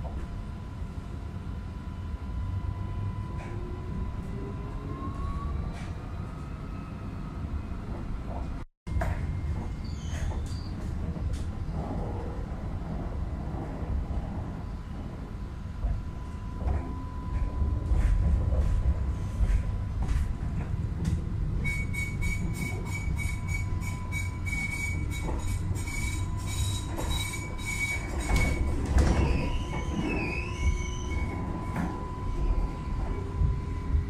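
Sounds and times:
tram rumble and whine: 0.0s - 34.0s
tram wheels squealing: 2.6s - 7.9s, 9.0s - 13.0s, 21.6s - 34.0s.

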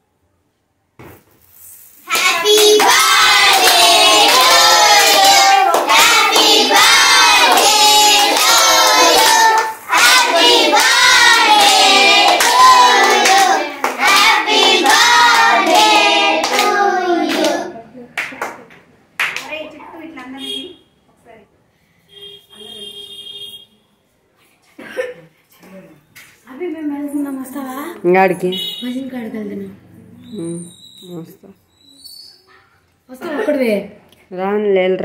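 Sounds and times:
group singing a celebration song: 2.0s - 17.9s
people clapping in rhythm: 2.1s - 19.6s.

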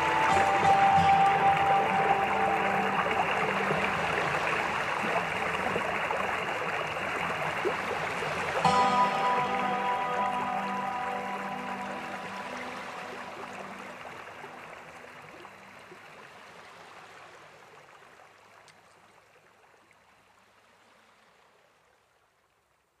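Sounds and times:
held music notes: 0.0s - 5.7s, 8.6s - 14.8s.

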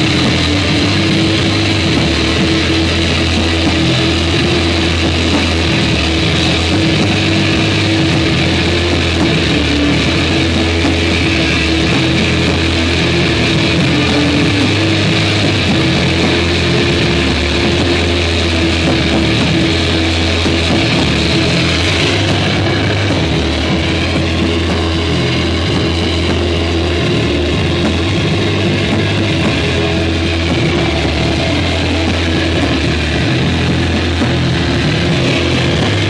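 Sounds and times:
drums: 0.0s - 36.0s
electric guitar through amplifier: 0.0s - 36.0s.

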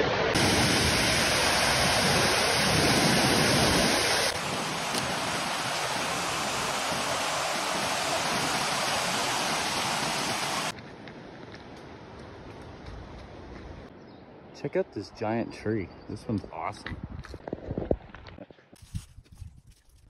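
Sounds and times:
waterfall rushing: 0.0s - 10.7s
creek cascading over rocks: 0.3s - 10.8s.

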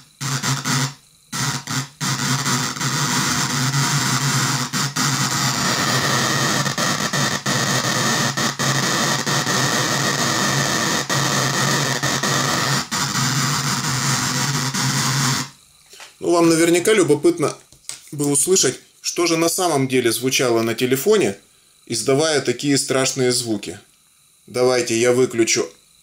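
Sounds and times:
distorted buzzing loudspeaker: 0.0s - 15.6s, 16.2s - 17.6s.

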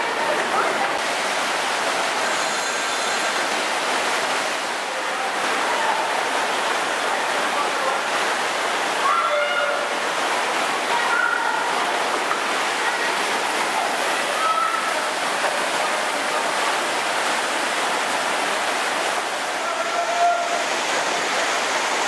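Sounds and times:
children calling: 0.0s - 1.0s, 8.9s - 16.5s
voices: 0.0s - 1.1s, 1.8s - 18.2s, 19.2s - 21.4s
fast-flowing water rushing: 0.0s - 22.0s.

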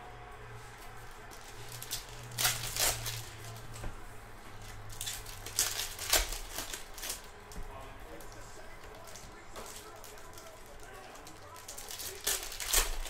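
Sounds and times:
low steady hum: 0.0s - 13.0s
plastic wrapper crinkling and tearing: 1.2s - 3.8s, 4.6s - 13.0s.

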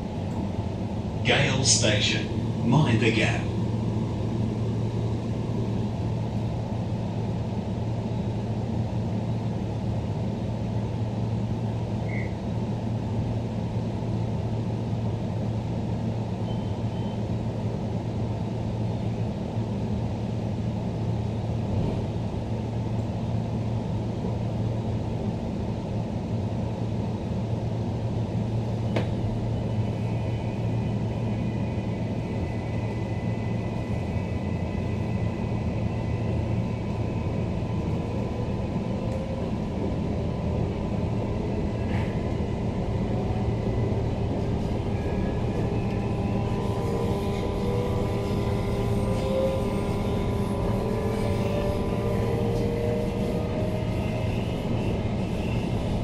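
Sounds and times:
train car low hum: 0.0s - 56.0s
click: 28.9s - 29.1s.

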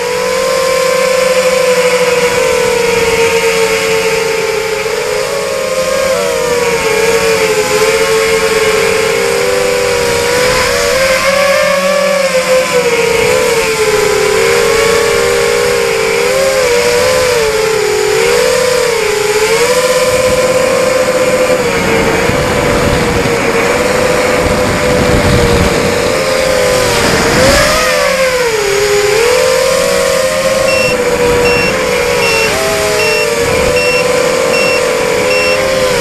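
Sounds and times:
drone motors whining: 0.0s - 36.0s.

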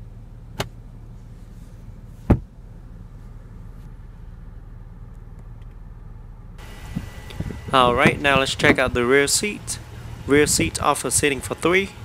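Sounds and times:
low car cabin hum: 0.0s - 12.0s.

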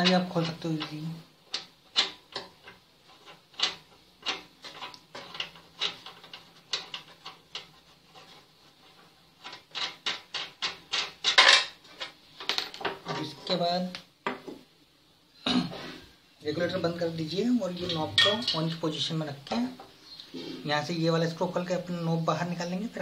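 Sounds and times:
spanner clinking on sheet metal: 0.0s - 8.4s, 9.4s - 12.9s.

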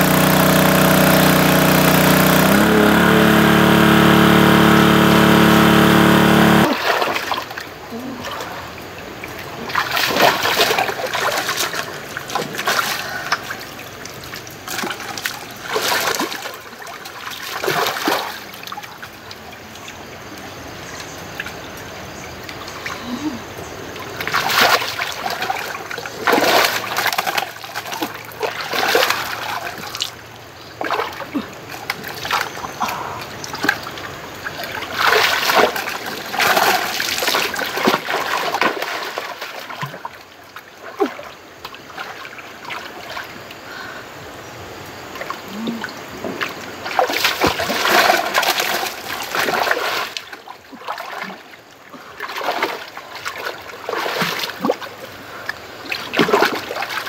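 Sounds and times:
shallow water splashing: 9.2s - 19.1s, 24.0s - 43.8s, 44.9s - 57.0s.

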